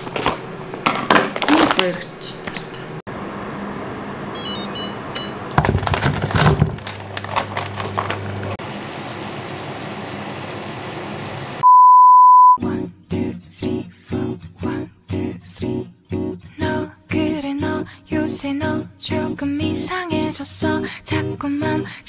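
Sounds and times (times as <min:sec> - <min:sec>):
dumplings clattering into a pan: 0:05.6 - 0:08.3
frying sizzle: 0:06.9 - 0:11.6
long loud beep: 0:11.6 - 0:12.6.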